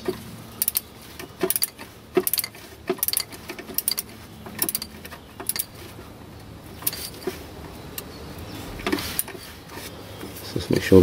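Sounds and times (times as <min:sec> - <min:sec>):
torque wrench ratchet clicking: 0:00.6 - 0:00.8, 0:01.4 - 0:04.0, 0:04.6 - 0:05.7.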